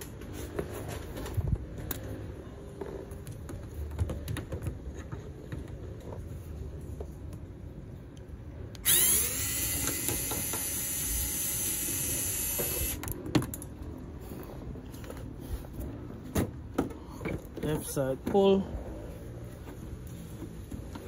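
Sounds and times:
electric screwdriver whine: 8.8 - 13.0.

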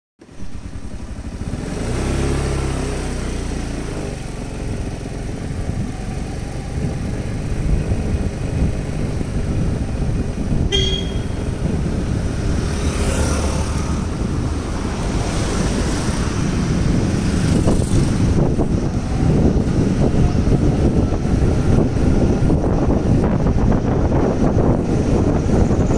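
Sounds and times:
wind rushing over microphone: 0.2 - 25.9
small motorbike engine running: 0.3 - 23.0
horn toot: 10.6 - 11.7.

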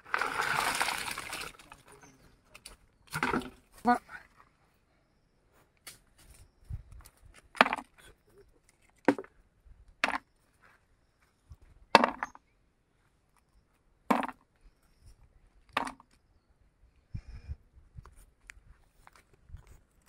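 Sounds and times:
nuts clacking into bucket: 3.1 - 3.6, 14.1 - 14.4, 15.7 - 16.1.

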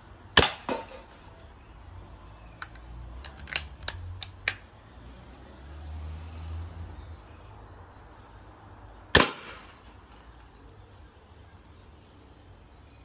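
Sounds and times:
air rifle firing crack: 0.4 - 1.1, 9.2 - 9.8
metallic clicks of rifle cocking: 2.5 - 4.7.

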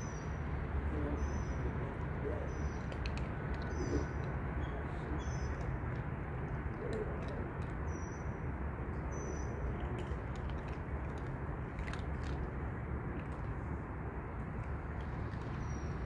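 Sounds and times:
small birds chirping: 0.0 - 12.4, 14.6 - 16.0
low outdoor rumble: 0.0 - 16.0
faint clicks: 2.7 - 4.4.

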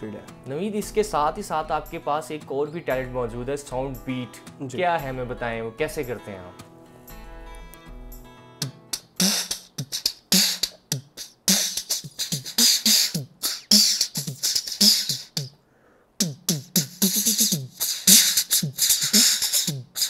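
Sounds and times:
man beatboxing: 8.6 - 15.6, 16.2 - 20.0.

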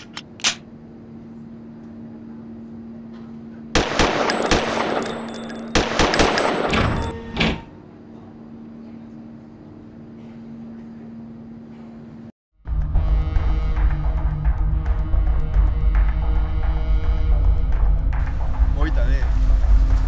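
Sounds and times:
steady low hum: 0.0 - 20.0
pistol gunshots: 3.8 - 7.1.

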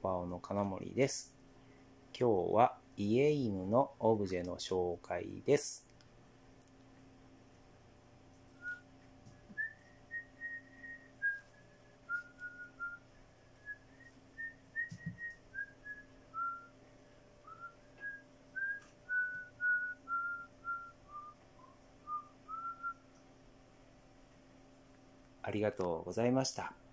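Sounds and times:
person whistling a tune: 9.6 - 13.0, 13.6 - 16.7, 17.4 - 23.0.

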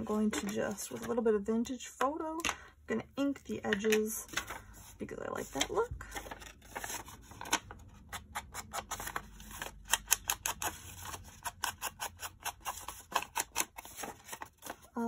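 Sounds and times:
paper rustling: 3.9 - 15.0.

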